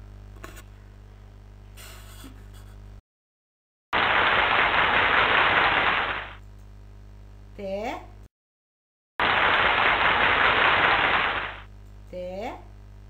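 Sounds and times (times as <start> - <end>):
low electrical hum: 0.0 - 3.0, 4.0 - 8.3, 9.2 - 13.0
rushing static noise: 4.0 - 6.4, 9.2 - 11.7
small click: 6.4 - 6.7.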